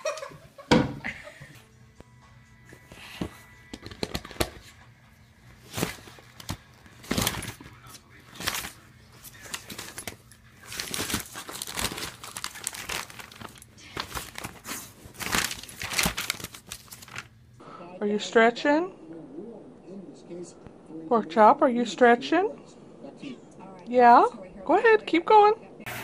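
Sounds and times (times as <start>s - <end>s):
magazine pages rustling: 3.0s - 17.4s.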